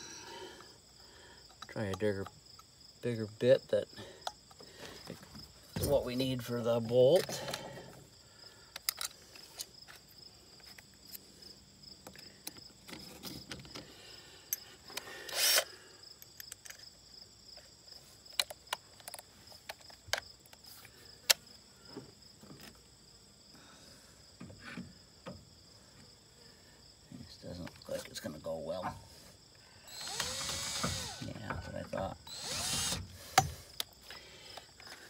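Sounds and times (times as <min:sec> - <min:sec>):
insect chirring: 0:00.0 - 0:35.0
tools clicking and rattling: 0:08.7 - 0:10.0, 0:14.5 - 0:16.9.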